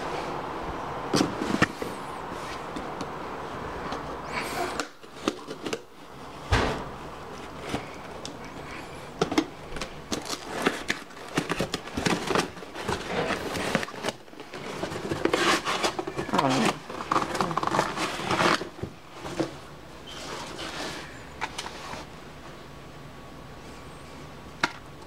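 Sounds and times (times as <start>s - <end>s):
cardboard scraping and rustling: 1.1s - 3.0s, 9.3s - 22.2s.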